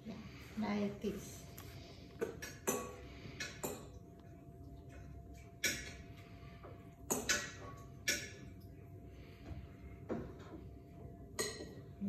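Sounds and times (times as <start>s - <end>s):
utensils clinking against dishes: 2.2s - 4.1s, 4.9s - 6.2s, 7.1s - 8.6s, 11.3s - 12.0s.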